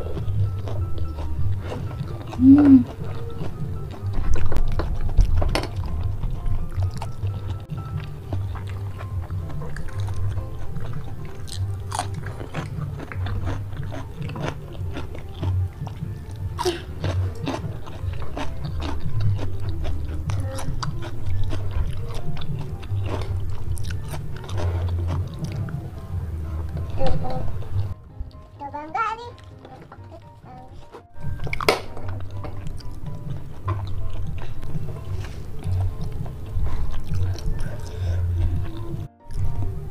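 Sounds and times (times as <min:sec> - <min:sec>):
close chewing and biting: 0:00.0 - 0:28.4, 0:29.4 - 0:39.9
background music with low bass: 0:00.0 - 0:39.9.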